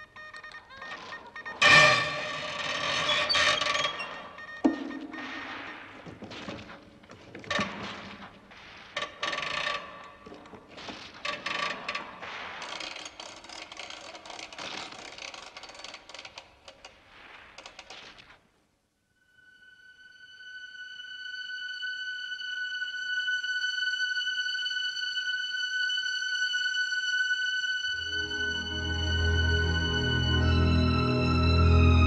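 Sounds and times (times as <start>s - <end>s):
machine gun mechanism clanking: 12.6s - 17.0s.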